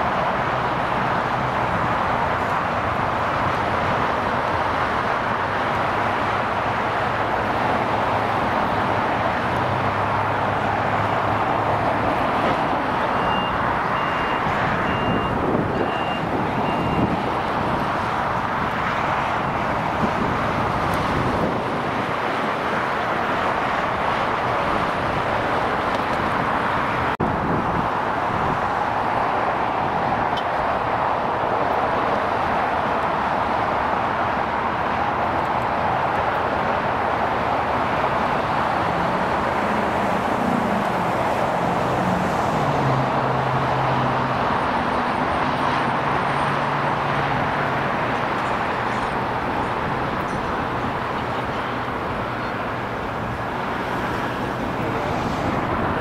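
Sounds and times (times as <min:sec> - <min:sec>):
high beeps: 0:13.1 - 0:17.0.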